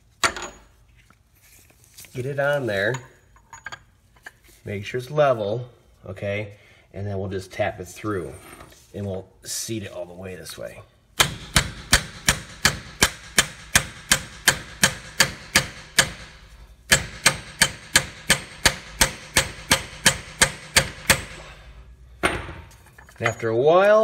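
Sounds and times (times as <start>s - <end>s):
hammer tapping on metal: 16.9s - 21.3s.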